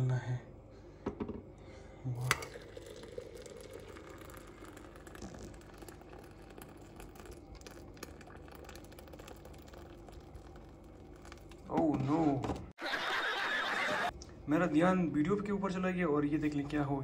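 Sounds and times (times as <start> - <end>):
water pouring into teapot: 2.2 - 11.7.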